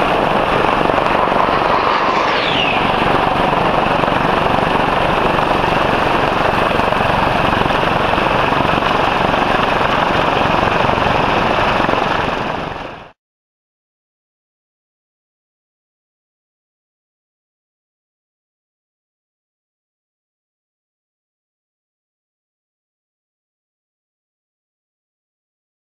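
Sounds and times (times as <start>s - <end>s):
jet engines rushing: 0.0s - 13.0s
high jet whine falling in pitch: 0.0s - 13.1s.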